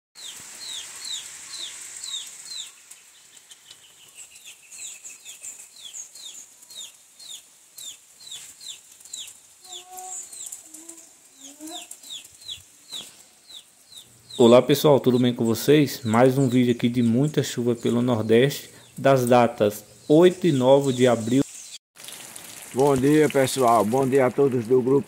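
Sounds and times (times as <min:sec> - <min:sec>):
chicks peeping: 0:00.2 - 0:21.4
rain hissing: 0:00.2 - 0:25.0
hen clucking: 0:09.6 - 0:20.3.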